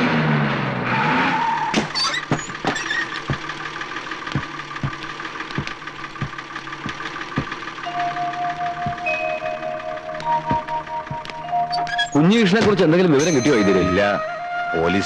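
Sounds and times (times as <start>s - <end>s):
bus brake squeal: 1.2s - 3.3s, 7.9s - 14.2s
bus engine idling: 1.6s - 15.0s
regular ticking: 2.2s - 14.0s.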